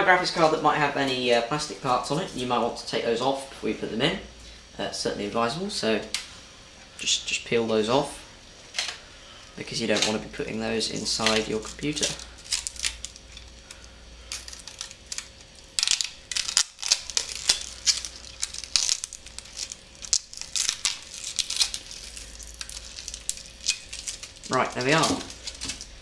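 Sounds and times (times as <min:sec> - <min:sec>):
plastic film crinkling: 0:09.8 - 0:26.0.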